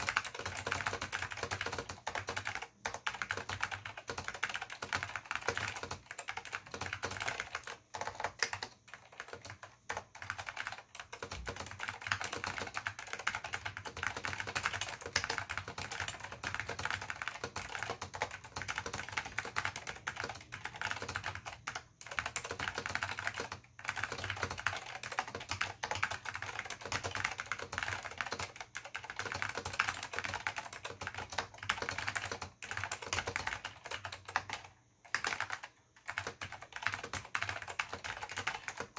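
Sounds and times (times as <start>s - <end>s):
fast keyboard typing: 0.0s - 38.9s.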